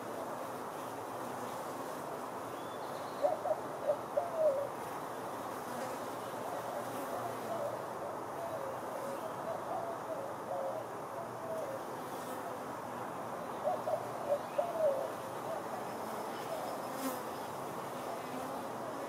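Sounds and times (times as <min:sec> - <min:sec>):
honeybees buzzing: 0:15.0 - 0:19.0.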